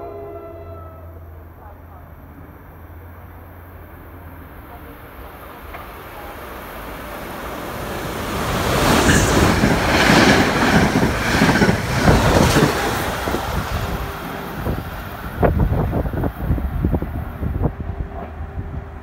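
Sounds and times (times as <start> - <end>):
train wheels rushing on rail: 4.2 - 19.0.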